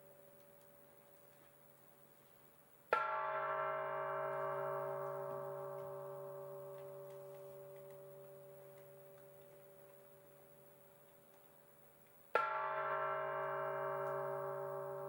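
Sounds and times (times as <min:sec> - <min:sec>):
bell-like ringing tone: 0:12.9 - 0:15.0.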